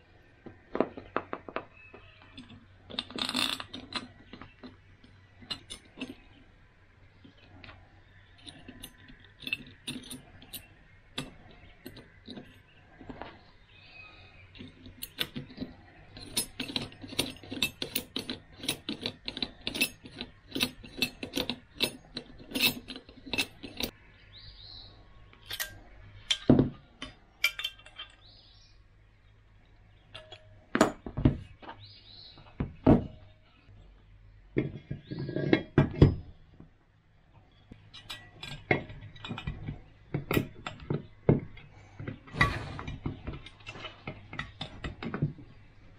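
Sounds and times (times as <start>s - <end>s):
small metal parts clinking: 0.7s - 6.4s, 7.2s - 13.4s, 14.4s - 24.0s, 25.4s - 28.4s, 30.0s - 33.7s, 37.5s - 45.9s.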